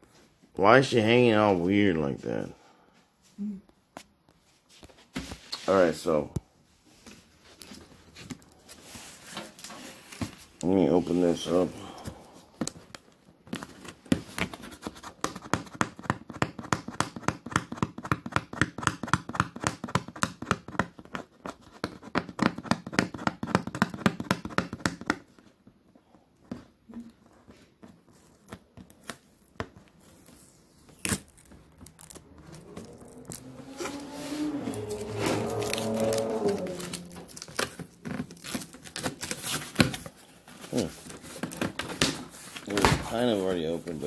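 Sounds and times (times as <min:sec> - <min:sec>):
wavering pitched sound: 0:32.0 - 0:37.6.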